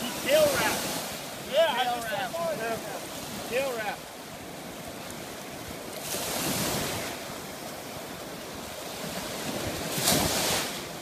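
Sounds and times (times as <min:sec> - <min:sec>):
ocean surf on beach: 0:00.0 - 0:11.0.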